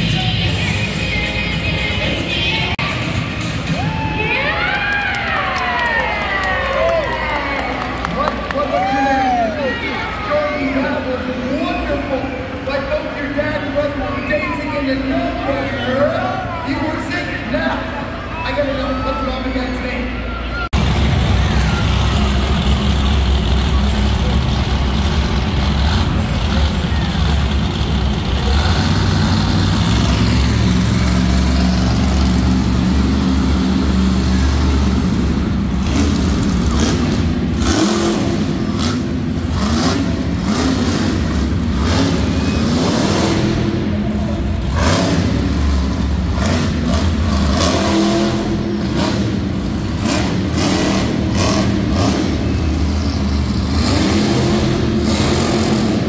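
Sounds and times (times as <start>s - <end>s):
truck engine revving: 20.6s - 56.0s.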